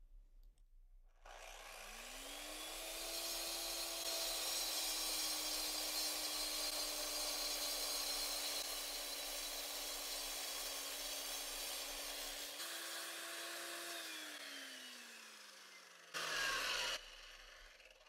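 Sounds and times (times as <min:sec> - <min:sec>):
saw motor hum: 0:01.2 - 0:18.0
saw blade grinding through brick: 0:01.3 - 0:18.0.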